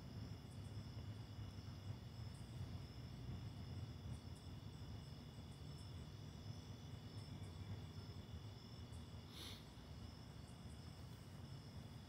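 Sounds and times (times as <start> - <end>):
crickets trilling: 0.0 - 12.0
low steady rumble: 0.0 - 12.0.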